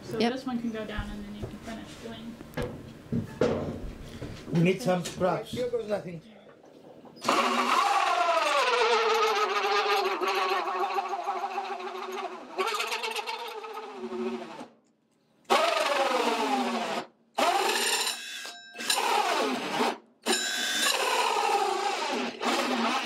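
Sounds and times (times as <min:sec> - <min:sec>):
drill cutting into wood: 0:07.2 - 0:14.8, 0:15.5 - 0:23.0.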